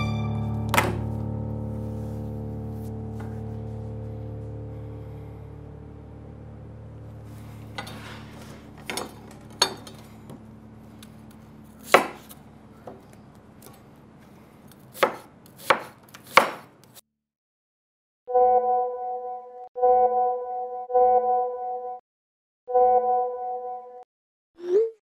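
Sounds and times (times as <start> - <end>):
knife chopping on wooden board: 11.8 - 13.0, 14.9 - 17.0.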